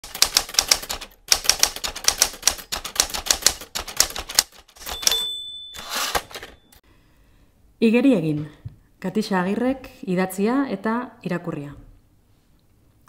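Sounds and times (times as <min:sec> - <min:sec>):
typewriter keystrokes: 0:00.0 - 0:06.6
typewriter bell ring: 0:04.8 - 0:06.8.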